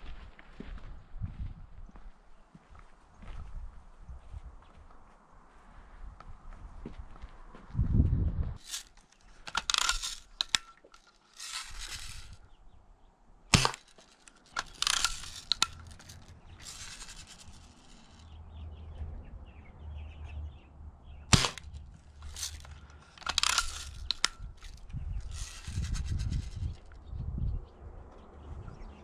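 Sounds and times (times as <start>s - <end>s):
rifle lever rasping and clicking: 8.6s - 12.4s, 13.5s - 18.2s, 21.3s - 26.6s
air rifle shots cracking: 9.4s - 10.7s, 13.5s - 18.2s, 21.3s - 26.1s.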